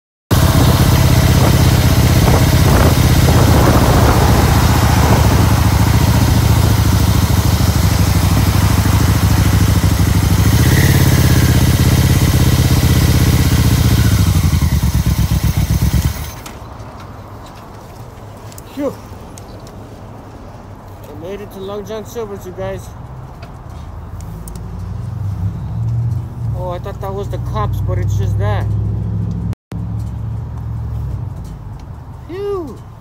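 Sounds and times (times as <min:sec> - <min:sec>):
wind rushing over microphone: 0:00.3 - 0:09.1
motorcycle engine running: 0:00.3 - 0:16.5.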